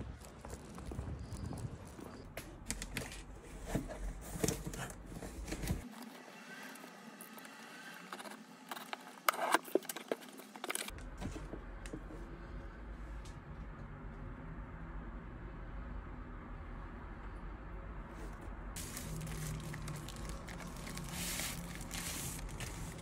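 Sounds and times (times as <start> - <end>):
footsteps on pavement: 0.0 - 2.3
wind rumble on microphone: 0.0 - 2.3
objects clicking and crinkling: 18.8 - 23.0.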